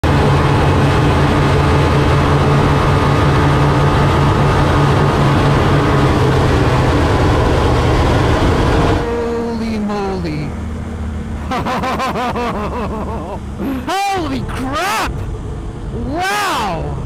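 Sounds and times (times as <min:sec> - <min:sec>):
wind rushing noise: 0:00.0 - 0:09.2
engine drone: 0:00.0 - 0:17.0.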